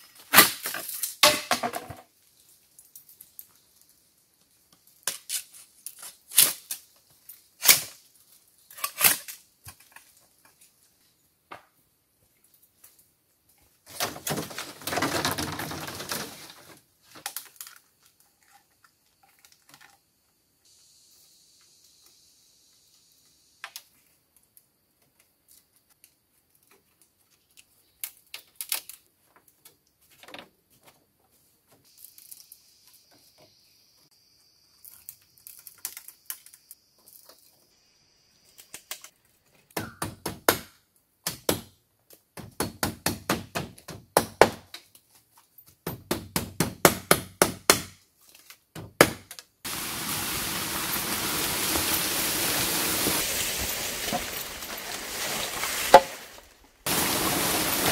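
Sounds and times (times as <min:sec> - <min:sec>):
loud rustling hiss: 0:49.7 - 0:57.9
bamboo knocking: 0:55.8 - 0:56.2.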